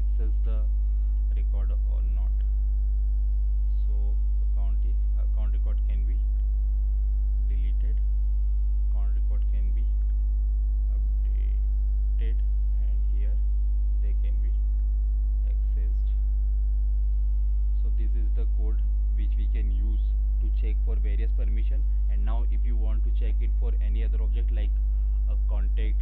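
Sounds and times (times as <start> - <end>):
electrical mains hum: 0.0 - 26.0
faint short sounds: 10.9 - 13.4.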